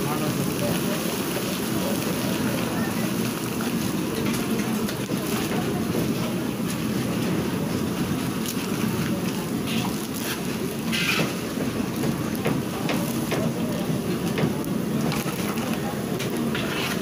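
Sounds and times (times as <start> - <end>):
crisps deep-frying in wok: 0.0 - 17.0
metal skimmer scraping wok: 9.6 - 11.6, 16.2 - 17.0.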